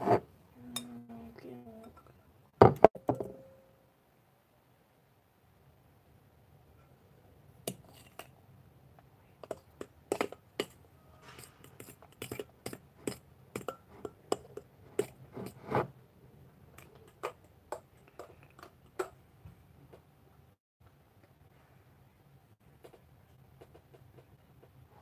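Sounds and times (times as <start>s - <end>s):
squelchy scrape: 15.3s - 15.9s.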